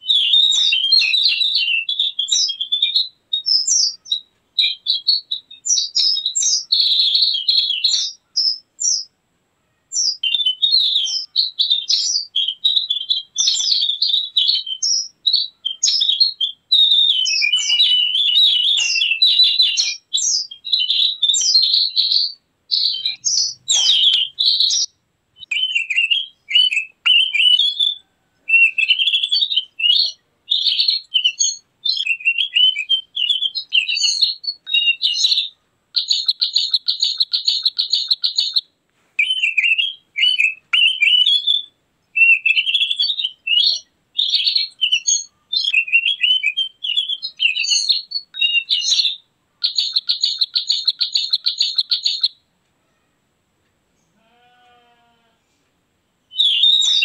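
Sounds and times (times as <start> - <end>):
bird twittering song: 0.0 - 9.2, 9.8 - 52.4, 56.3 - 57.0.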